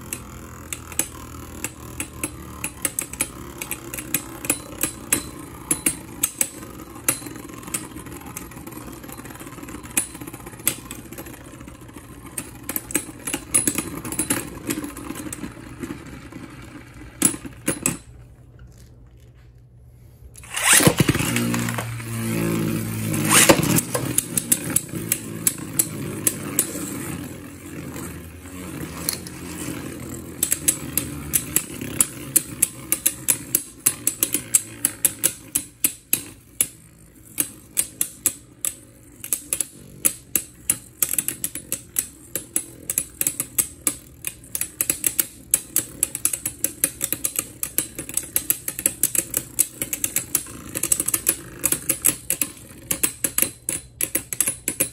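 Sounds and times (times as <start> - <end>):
spinning tops whirring: 0.0 - 18.4, 20.3 - 54.9
spinning tops clashing: 20.4 - 27.6.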